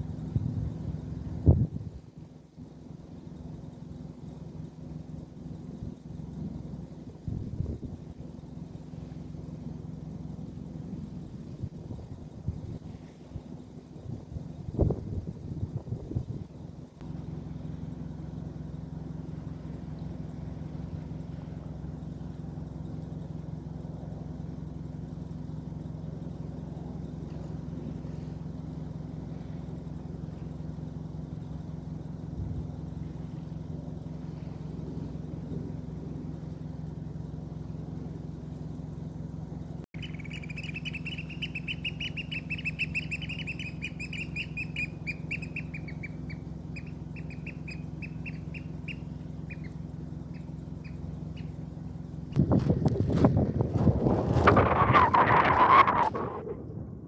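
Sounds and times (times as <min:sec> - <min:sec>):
steady low hum: 0:00.0 - 0:57.0
bird piping trill: 0:40.0 - 0:51.8.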